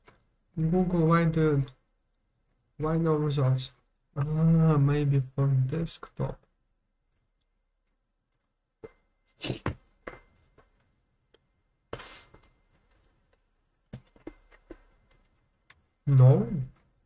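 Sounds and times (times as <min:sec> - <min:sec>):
computer mouse clicks: 0:07.1 - 0:07.5.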